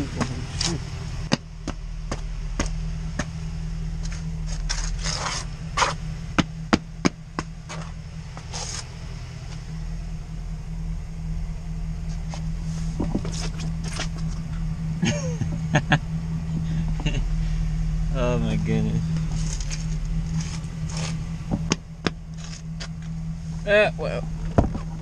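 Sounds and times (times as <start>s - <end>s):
boot knocking and scraping: 0.0s - 3.4s, 4.0s - 8.9s, 12.0s - 14.6s, 19.1s - 23.1s, 24.4s - 25.0s
truck engine idling: 0.0s - 25.0s.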